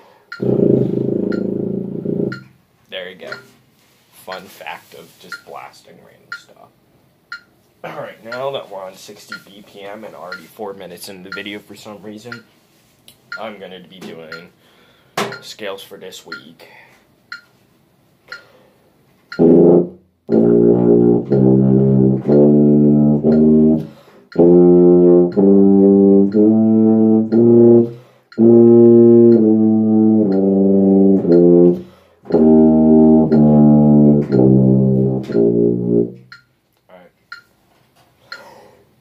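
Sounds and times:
tuba playing scales: 0:00.3 - 0:02.5, 0:19.3 - 0:36.4.

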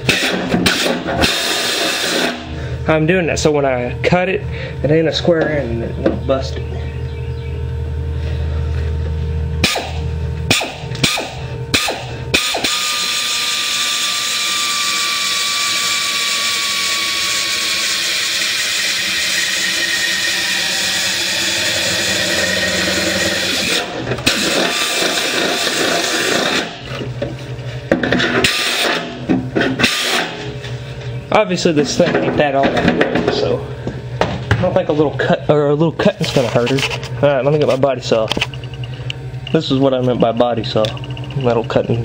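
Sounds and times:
pneumatic air drill boring: 0:00.0 - 0:02.6, 0:09.6 - 0:27.0, 0:28.2 - 0:30.5.

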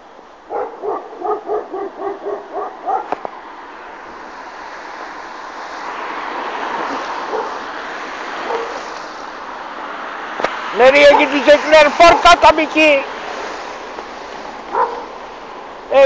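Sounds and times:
broad steady rushing noise: 0:00.0 - 0:16.0
dog barking: 0:00.5 - 0:03.2, 0:07.3 - 0:07.6, 0:08.4 - 0:08.8, 0:11.1 - 0:11.4, 0:14.7 - 0:15.2.

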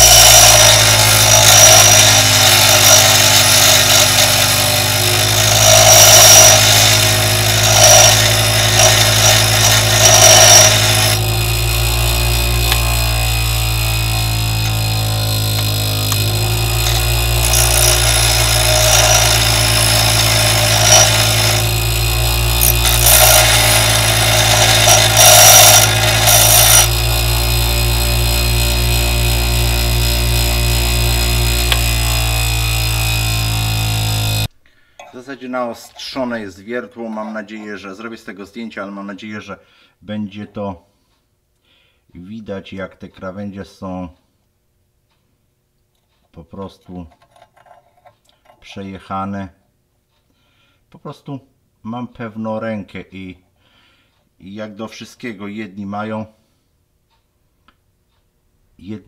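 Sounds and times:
bench grinder motor humming: 0:00.0 - 0:34.5
drill bit grinding on wheel: 0:00.0 - 0:34.5.

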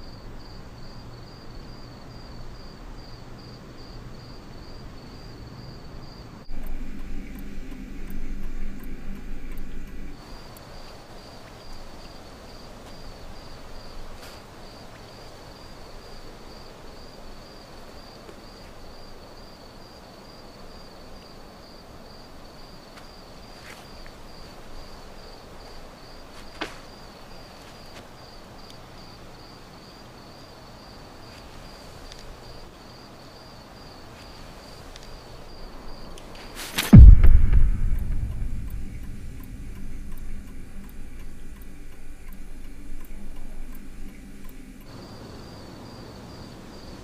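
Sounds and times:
cricket chirping: 0:00.0 - 0:47.0
soft ambient hiss: 0:00.0 - 0:47.0
faint clicks: 0:36.1 - 0:45.0.

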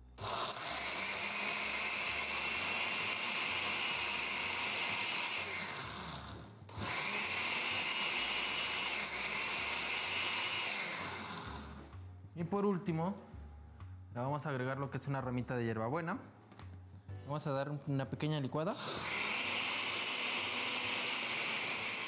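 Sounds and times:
electric blender whining: 0:00.0 - 0:12.0, 0:18.8 - 0:22.0.

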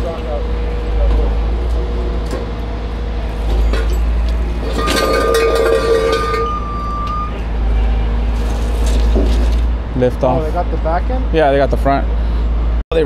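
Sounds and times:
truck diesel engine rumbling: 0:00.0 - 0:13.0
metal rigging clinking and ringing: 0:03.5 - 0:06.7.

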